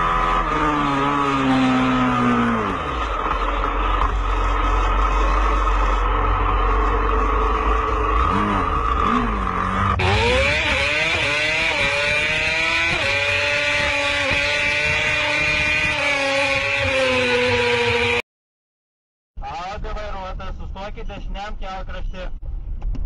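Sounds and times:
engine accelerating through gear changes: 0:00.0 - 0:18.2
vehicle engine and wind noise: 0:00.0 - 0:18.2, 0:19.4 - 0:23.0.

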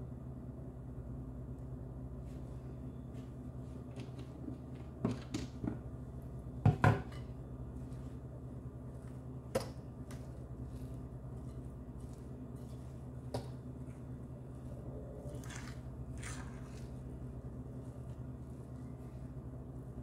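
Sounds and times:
steady low hum: 0:00.0 - 0:20.0
kitchenware knocks and clicks: 0:06.7 - 0:07.2.

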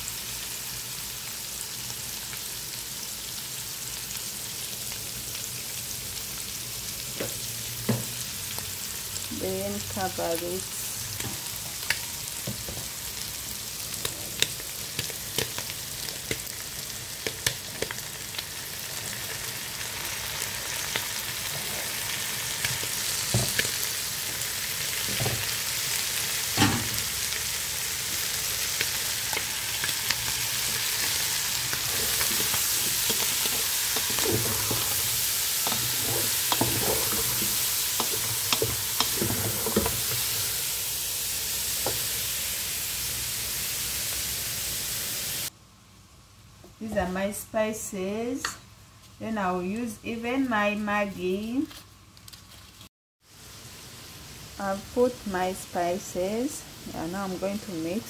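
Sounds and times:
shrimp and onions sizzling in oil: 0:00.0 - 0:45.5, 0:53.2 - 0:58.0
spoon stirring against pot: 0:31.7 - 0:40.3.

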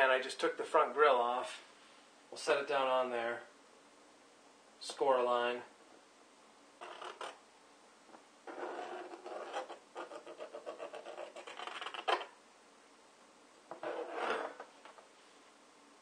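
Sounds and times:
tool scraping plastic lid: 0:06.8 - 0:07.4, 0:08.5 - 0:12.3, 0:13.7 - 0:15.0.

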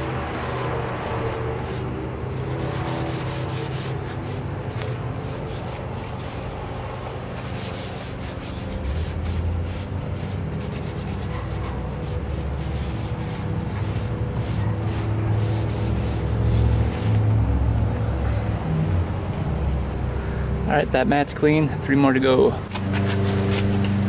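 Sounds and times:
cloth rubbing rubber mat: 0:00.0 - 0:18.1.

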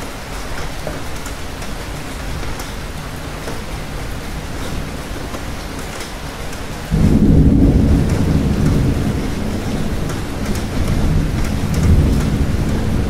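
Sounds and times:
steady rain: 0:00.0 - 0:13.0
thunder rumble: 0:03.2 - 0:13.0.

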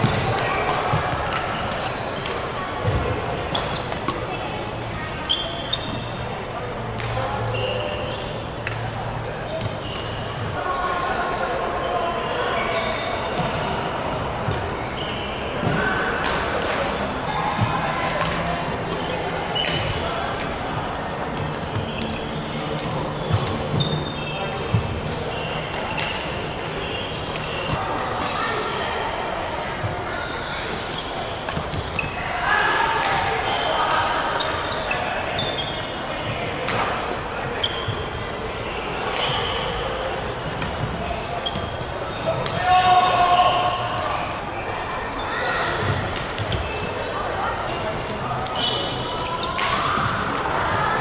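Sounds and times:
echoing hall noise: 0:00.0 - 0:51.0
rackets striking shuttlecock: 0:40.6 - 0:41.0.

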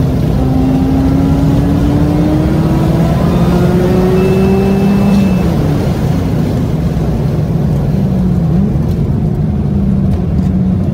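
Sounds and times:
rotary engine drone: 0:00.0 - 0:06.8.

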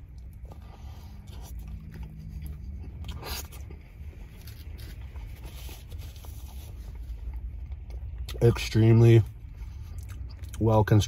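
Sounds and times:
steady low rumble: 0:00.0 - 0:11.0
wet chewing sounds: 0:00.0 - 0:11.0
rustling scrape: 0:04.2 - 0:07.2.

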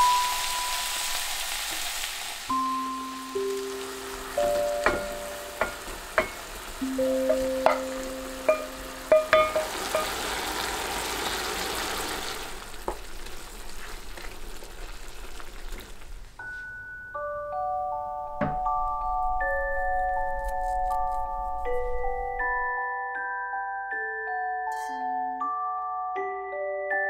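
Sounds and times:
soft music with bell-like notes: 0:00.0 - 0:01.2, 0:02.5 - 0:10.1, 0:16.4 - 0:27.0
food sizzling in a frying pan: 0:00.0 - 0:16.3.

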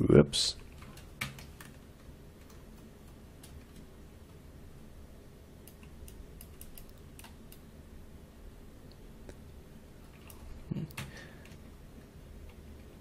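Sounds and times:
low room hum: 0:00.0 - 0:13.0
mouse and keyboard clicks: 0:05.7 - 0:07.6.

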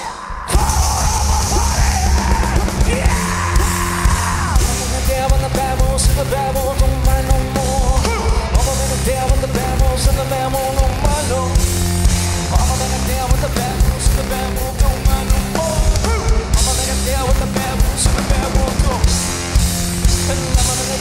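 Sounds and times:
singer yelling into microphone: 0:00.0 - 0:11.6
live rock band playing: 0:00.0 - 0:21.0
pounding drums: 0:00.0 - 0:21.0.

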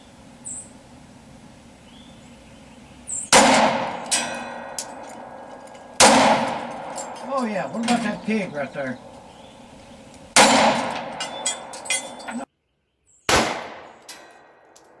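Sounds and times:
pistol shots: 0:03.3 - 0:05.4, 0:06.0 - 0:07.1, 0:10.3 - 0:11.8, 0:13.3 - 0:15.0
steel target clanging: 0:03.3 - 0:09.1, 0:10.3 - 0:12.5.

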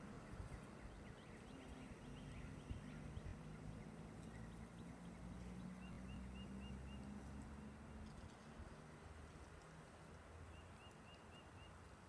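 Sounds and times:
small birds chirping: 0:00.4 - 0:07.1.

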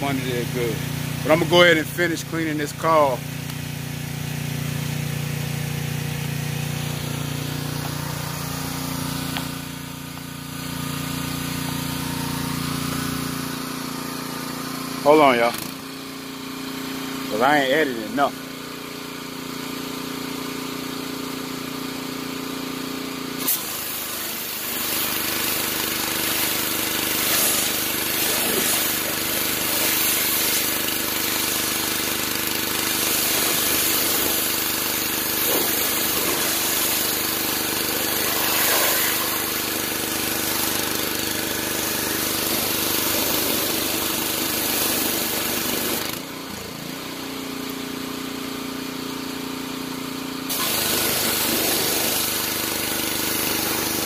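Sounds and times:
pressure washer humming: 0:00.0 - 0:54.0
water jet hissing on car: 0:23.4 - 0:46.0, 0:50.5 - 0:54.0.

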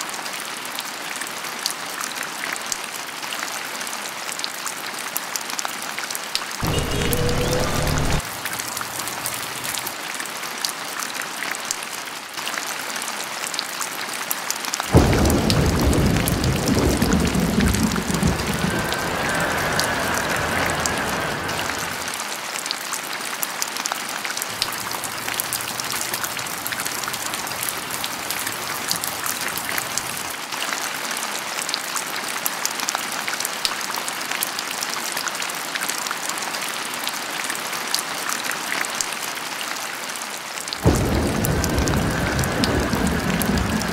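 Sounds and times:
rain pattering: 0:00.0 - 0:43.9
thunder cracking and rumbling: 0:06.6 - 0:09.9, 0:14.9 - 0:22.2, 0:24.5 - 0:30.3, 0:40.8 - 0:43.9.

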